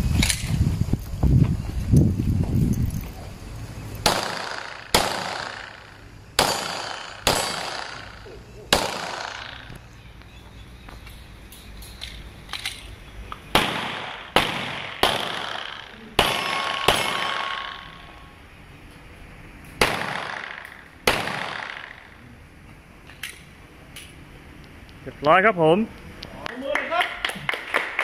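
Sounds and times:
pistol shots echoing: 0:04.0 - 0:09.7, 0:13.5 - 0:18.1, 0:19.8 - 0:22.2
metallic ring of steel target: 0:14.9 - 0:18.3.

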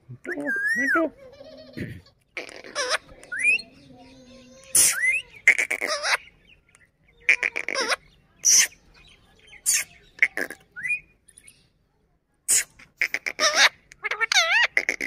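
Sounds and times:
parakeet shrill calls and squawks: 0:02.4 - 0:06.4, 0:07.2 - 0:11.6, 0:12.5 - 0:15.0.

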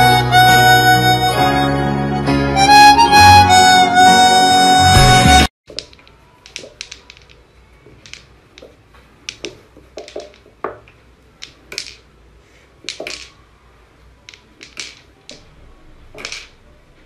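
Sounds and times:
toy pool balls knocking: 0:05.7 - 0:12.2, 0:12.8 - 0:13.4, 0:14.2 - 0:15.5, 0:16.1 - 0:16.6.

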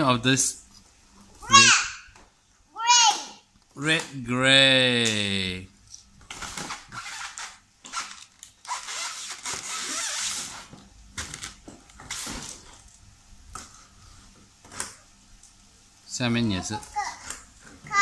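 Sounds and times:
cardboard and plastic rustling: 0:06.2 - 0:13.0.

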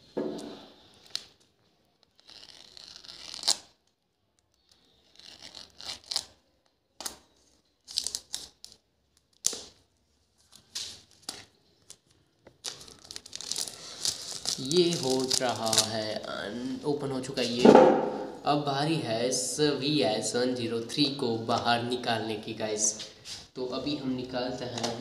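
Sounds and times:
plastic shrink-wrap crinkling: 0:00.8 - 0:16.5.

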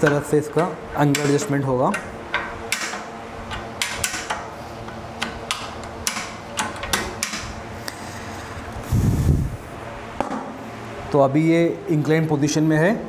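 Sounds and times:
steel lever clicking against plates: 0:00.0 - 0:07.5.

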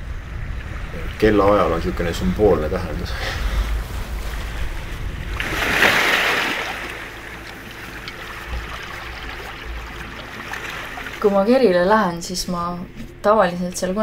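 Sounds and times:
wind rumble: 0:00.0 - 0:14.0
waves washing over stony shore: 0:02.8 - 0:11.3.

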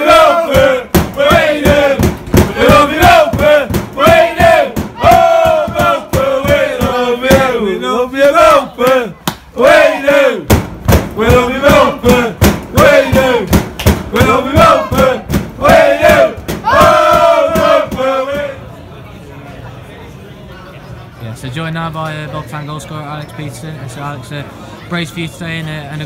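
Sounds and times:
football supporters chanting: 0:00.0 - 0:18.9
sharp claps or bangs: 0:00.5 - 0:07.5, 0:08.8 - 0:09.5, 0:10.4 - 0:18.5.

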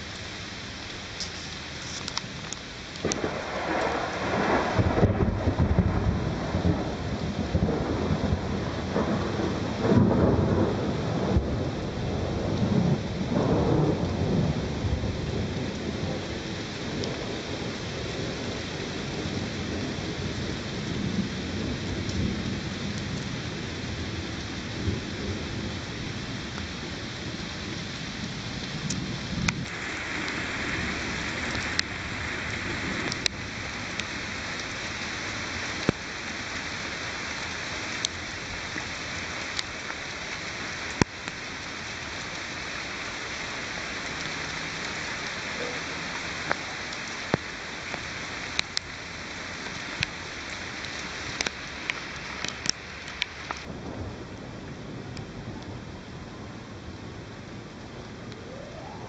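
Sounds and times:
raindrops ticking: 0:00.0 - 0:05.4, 0:22.0 - 0:24.6, 0:27.8 - 0:53.8
steady rain: 0:00.0 - 0:59.0
thunder rumbling: 0:02.9 - 0:39.4, 0:53.5 - 0:59.0.

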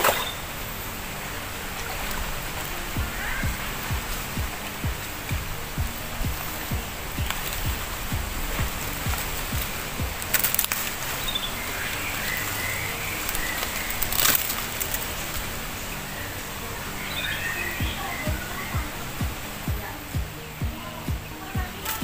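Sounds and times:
birds chirping faintly: 0:00.0 - 0:22.0
music beat thumps: 0:01.8 - 0:11.2, 0:17.8 - 0:22.0.

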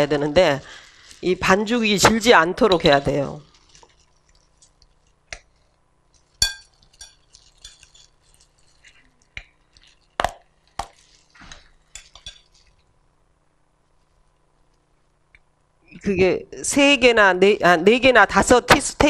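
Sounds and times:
metal spoon clinking glass bowl: 0:06.3 - 0:08.2, 0:11.9 - 0:12.6.

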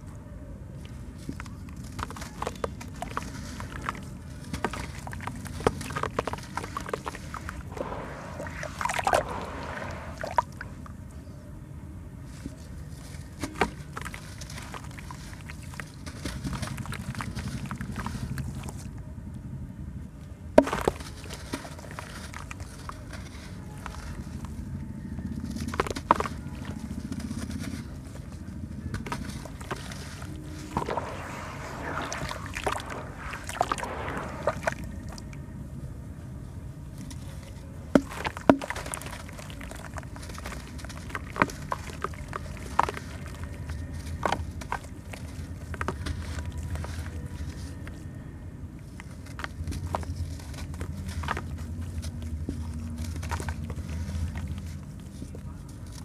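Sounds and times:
grit pattering into water: 0:01.2 - 0:11.0, 0:13.4 - 0:18.8, 0:29.0 - 0:35.4, 0:37.2 - 0:47.8
steady low rumble: 0:03.6 - 0:13.4, 0:26.4 - 0:55.9
cement crackling: 0:28.9 - 0:35.6, 0:37.8 - 0:47.9.

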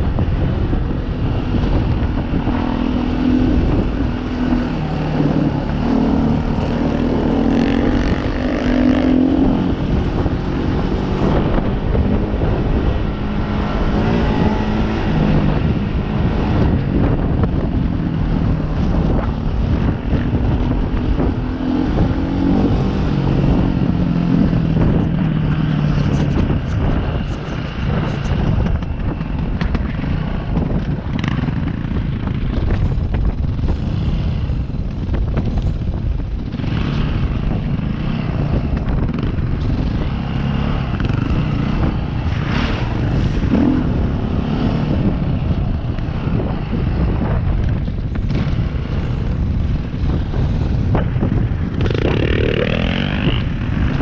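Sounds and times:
continuous rush of noise: 0:00.0 - 0:54.0
dirt bike engine revving: 0:51.6 - 0:54.0.

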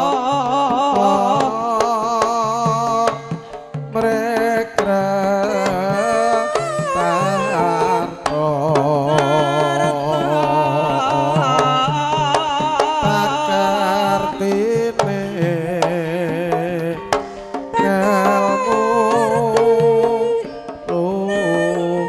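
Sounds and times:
person singing: 0:00.0 - 0:22.0
gamelan ensemble playing: 0:16.8 - 0:22.0.

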